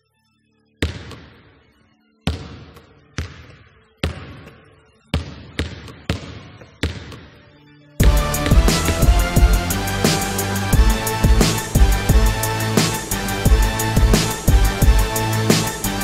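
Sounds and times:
basketball bouncing on hard floor: 0.8 - 1.4, 2.3 - 7.4.

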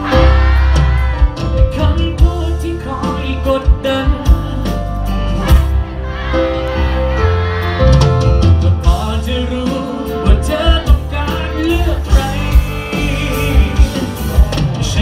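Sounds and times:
man singing into microphone: 0.0 - 5.0, 8.8 - 15.0
live rock band playing: 0.0 - 15.0.

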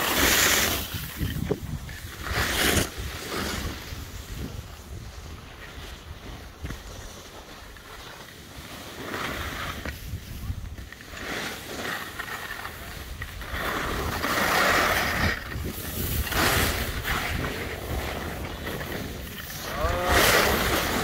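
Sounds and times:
wind across microphone: 0.0 - 7.3, 9.3 - 11.2, 12.4 - 21.0
skis scraping over snow: 0.0 - 21.0.

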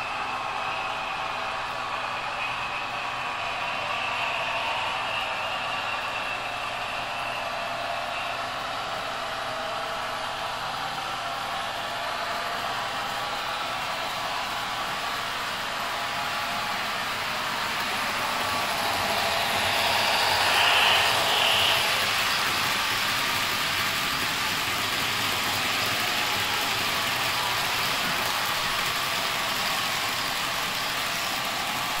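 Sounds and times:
model train wheels rattling on rails: 13.0 - 32.0.

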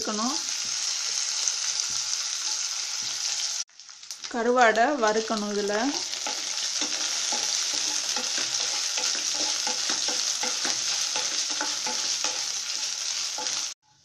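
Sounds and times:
fish sizzling in hot oil: 0.0 - 13.8
wooden spatula scraping pan: 6.0 - 13.7.

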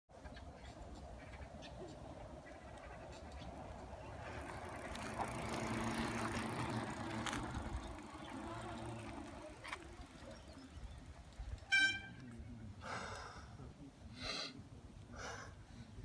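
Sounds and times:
bike tyres rolling on pavement: 1.0 - 12.3.

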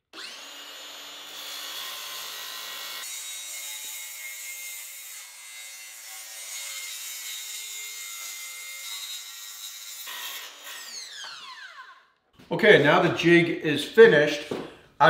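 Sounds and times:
circular saw cutting plywood: 0.1 - 12.1.

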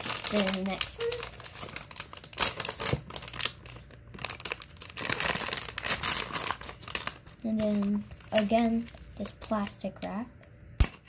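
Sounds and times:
plastic wrapping crinkling: 0.0 - 10.0.

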